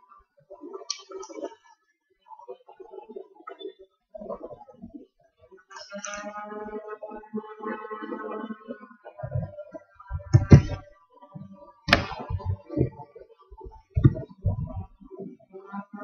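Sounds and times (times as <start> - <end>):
knocks and thumps: 9.2 - 9.5, 10.1 - 10.8, 11.9 - 13.0, 13.6 - 15.1.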